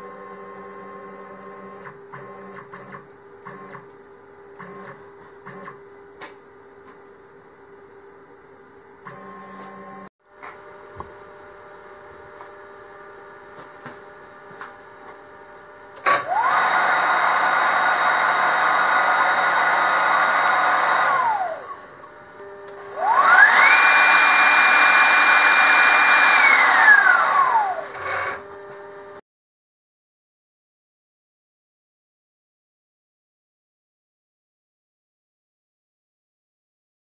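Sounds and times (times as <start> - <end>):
quiet machine hum: 0.0 - 16.2, 20.9 - 25.2
router spindle motor whine: 9.0 - 10.1, 16.0 - 28.7.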